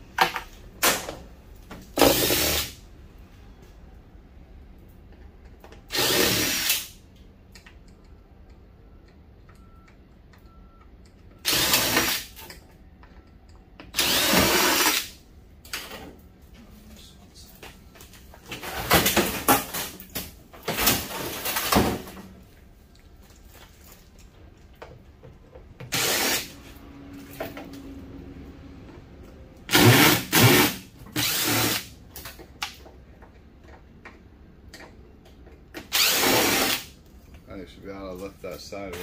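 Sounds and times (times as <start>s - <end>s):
cordless drill bursts: 5.9s - 6.9s, 11.4s - 12.4s, 14.0s - 15.2s, 25.9s - 26.5s, 29.7s - 31.9s, 35.9s - 36.9s.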